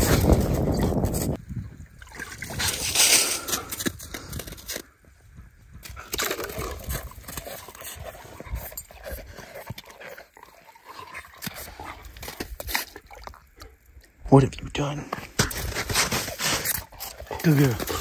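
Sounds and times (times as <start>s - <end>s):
water and slush sloshing: 0.0s - 3.9s
dog sniffing and panting: 7.4s - 10.4s, 15.8s - 18.0s.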